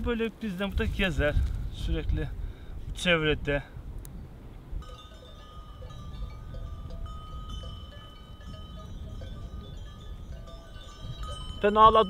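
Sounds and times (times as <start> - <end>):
goat bells clinking: 4.8 - 12.0.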